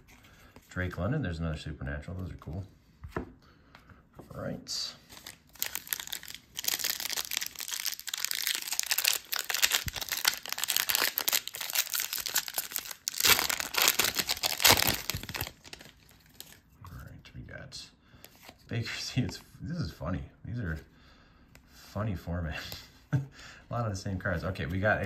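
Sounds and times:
foil wrapper tearing and crinkling: 0:05.2 - 0:16.6.

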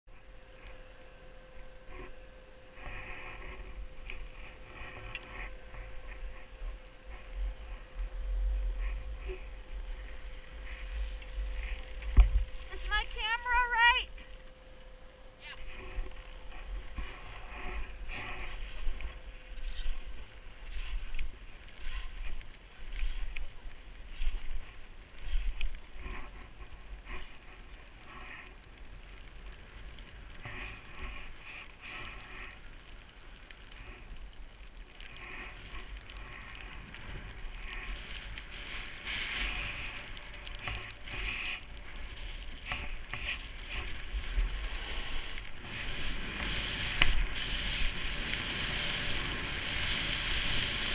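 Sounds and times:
wind rumbling on microphone: 0:00.1 - 0:50.9
skis scraping over snow: 0:15.0 - 0:50.9.

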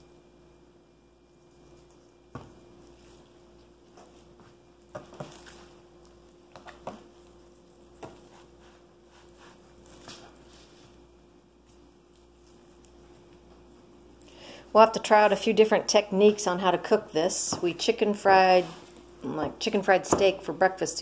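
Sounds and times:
wet squishing of meat: 0:01.4 - 0:11.0.

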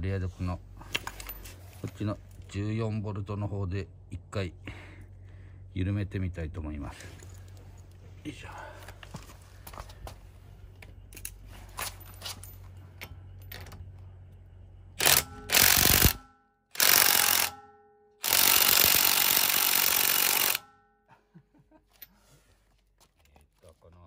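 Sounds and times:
impact wrench hammering: 0:15.0 - 0:20.9.

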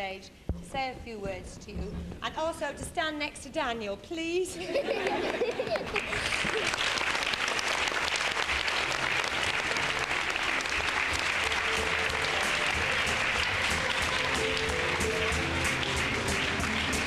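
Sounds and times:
audience applause: 0:04.9 - 0:17.0
music playing: 0:07.7 - 0:17.0.

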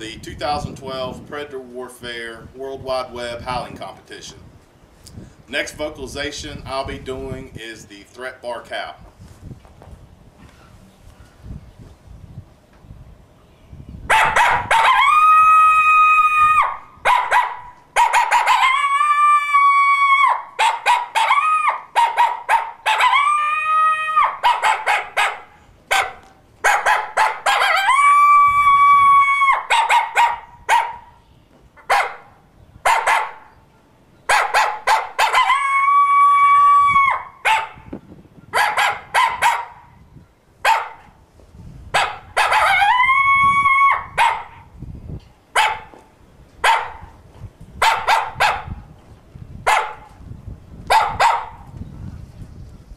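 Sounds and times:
coyote call barks and howls: 0:14.1 - 0:31.1, 0:32.8 - 0:33.6, 0:34.3 - 0:37.9, 0:38.5 - 0:40.0, 0:40.6 - 0:41.0, 0:41.9 - 0:44.7, 0:50.9 - 0:51.6.

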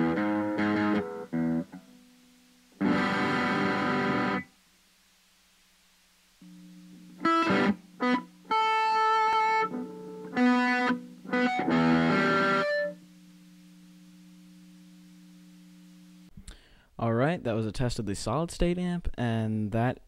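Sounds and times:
electric guitar chords and notes: 0:00.0 - 0:04.5, 0:06.4 - 0:16.6
steady low amp hum: 0:00.0 - 0:16.4.

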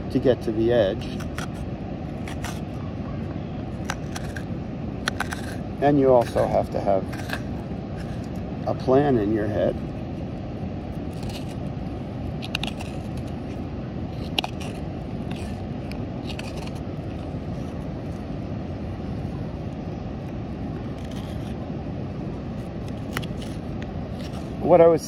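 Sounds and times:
low rushing noise: 0:00.0 - 0:25.0
knife scraping wood: 0:01.0 - 0:02.7, 0:03.8 - 0:08.5, 0:11.0 - 0:11.7, 0:12.3 - 0:18.2, 0:20.8 - 0:21.6, 0:22.6 - 0:24.6.

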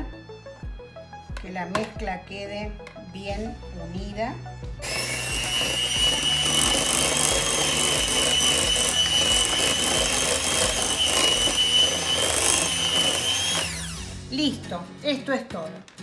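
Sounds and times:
electric mixer whining: 0:04.8 - 0:14.3.

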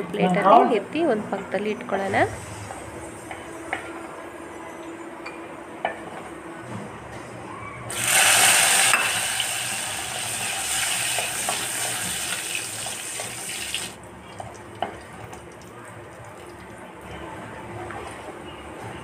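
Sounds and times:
raisins sizzling in hot ghee: 0:07.9 - 0:14.0.

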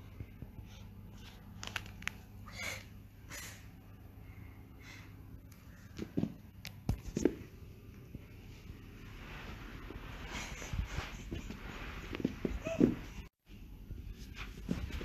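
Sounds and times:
soft rustles and clicks: 0:00.1 - 0:02.4, 0:05.5 - 0:13.3.

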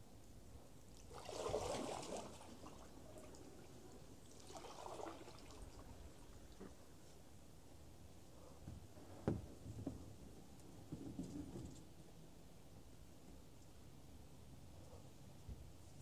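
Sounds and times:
water splashing beside canoe: 0:01.0 - 0:03.4, 0:04.3 - 0:06.6.

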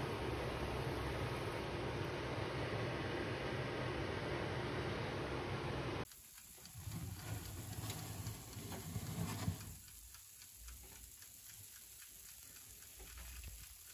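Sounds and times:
deep fryer humming: 0:00.0 - 0:11.8
hot oil crackling and ticking: 0:06.0 - 0:13.9.

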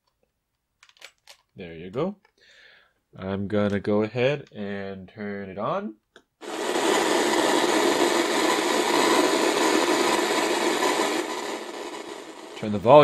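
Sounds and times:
radio static hiss: 0:06.4 - 0:13.0.

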